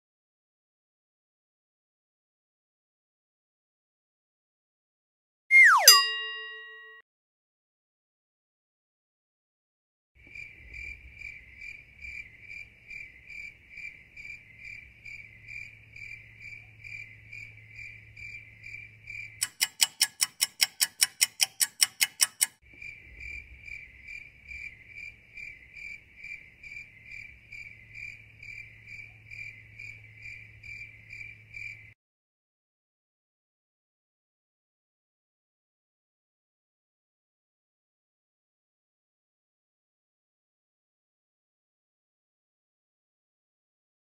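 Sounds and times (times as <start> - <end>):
cricket chirping: 10.2 - 32.0
loud sharp clicking: 19.4 - 22.6.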